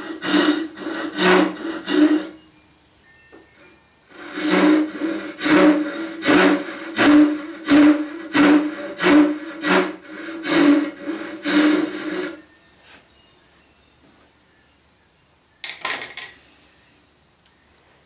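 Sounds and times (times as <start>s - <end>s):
hand saw rasping through wood: 0.0s - 2.4s, 4.1s - 12.4s.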